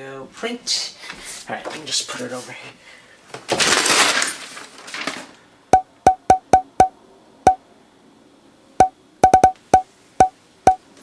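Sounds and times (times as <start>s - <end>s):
paper rustle: 3.4s - 5.4s.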